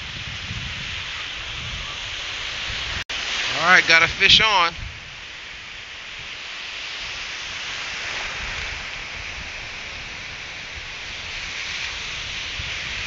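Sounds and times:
ocean surf breaking: 0.0s - 13.0s.

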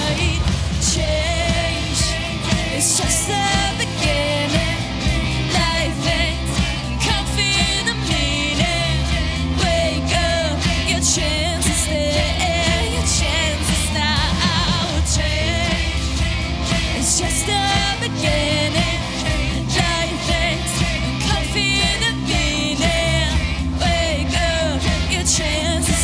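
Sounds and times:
woman singing with vibrato: 0.0s - 16.2s, 16.9s - 26.0s
pop-rock band playing: 0.0s - 26.0s.

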